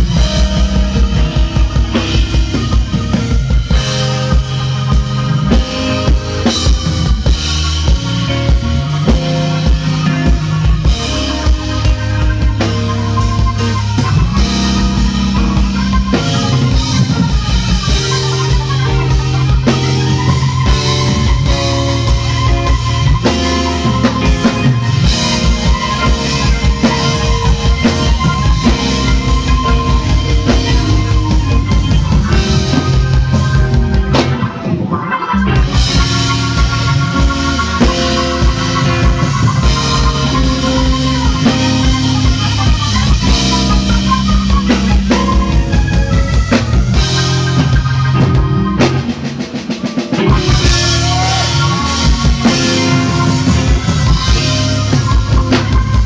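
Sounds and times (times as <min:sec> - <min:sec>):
drum kit beat: 0:00.0 - 0:56.0
keyboards: 0:00.0 - 0:56.0.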